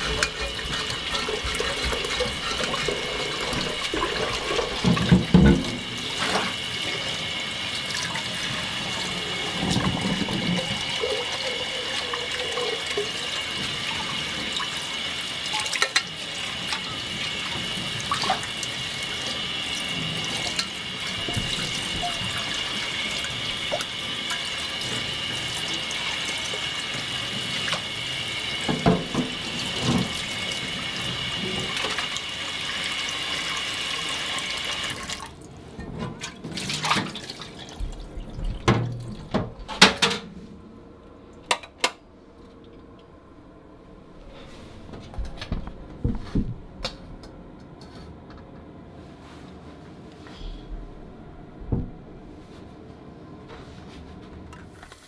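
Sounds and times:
tap water running into a pot: 0.0 - 35.4.

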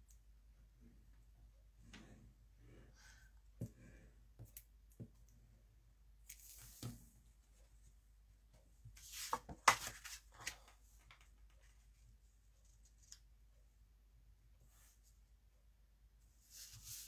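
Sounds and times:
paper rustling and tapping: 9.1 - 11.7.

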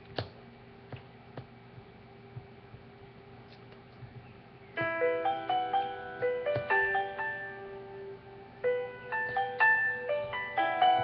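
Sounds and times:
faint hum: 0.0 - 11.0
piano music: 4.7 - 11.0.

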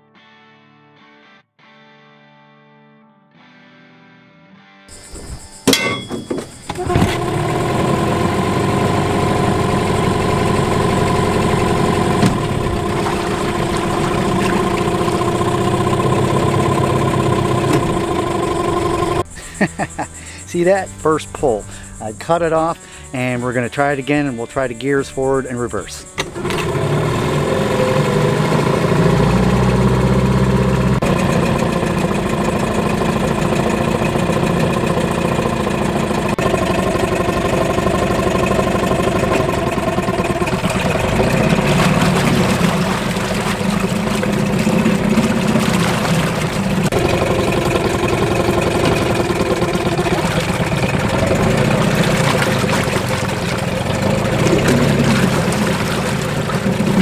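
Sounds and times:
water churning: 5.0 - 19.3, 25.3 - 57.0
two-stroke outboard motor running: 5.5 - 20.7, 25.2 - 57.0.

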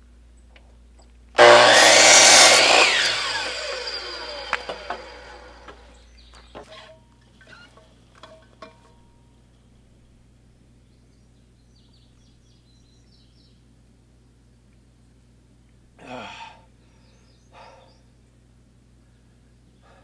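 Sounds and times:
miter saw cutting wood: 1.4 - 6.0
saw motor spinning down: 1.4 - 6.0.

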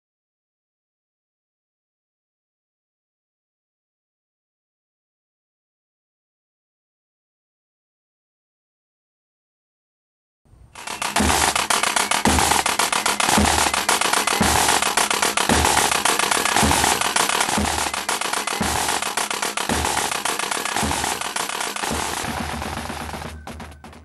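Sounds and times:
music with slow drum beat: 10.8 - 24.0.

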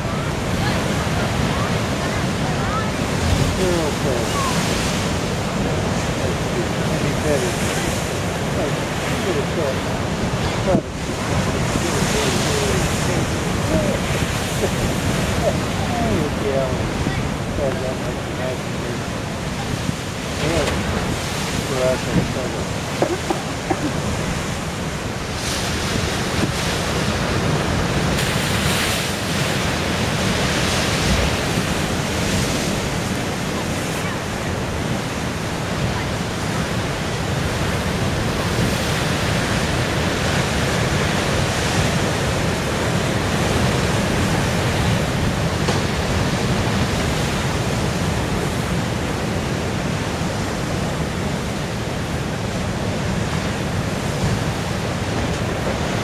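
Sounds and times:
surf breaking on rocky shore: 0.0 - 56.0
wind rumbling on microphone: 0.0 - 56.0.

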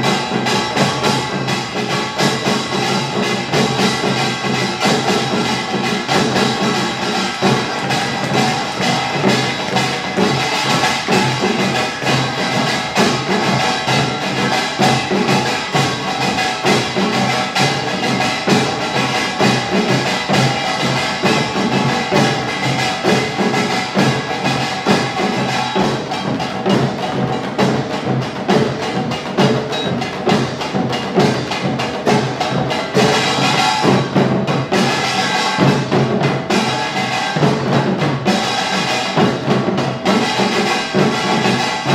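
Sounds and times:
barrel drums: 0.0 - 41.9
hourglass drums: 0.0 - 41.9
small gongs clanging: 0.0 - 41.9.

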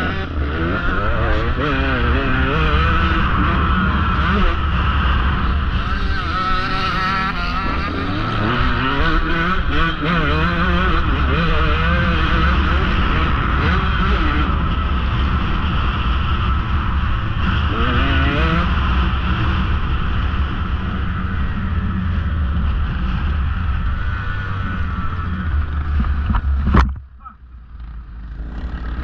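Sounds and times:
dirt bike engine revving: 0.0 - 26.8, 27.8 - 29.0
wind rumbling on microphone: 10.6 - 29.0.

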